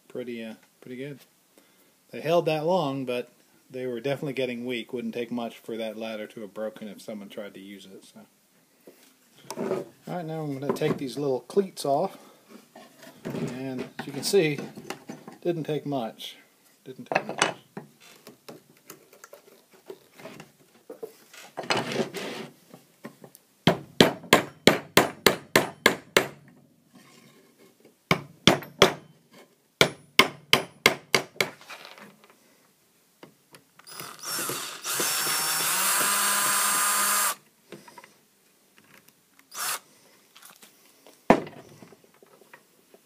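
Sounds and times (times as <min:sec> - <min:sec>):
cordless drill running: 0:33.8 - 0:37.4, 0:39.5 - 0:39.8.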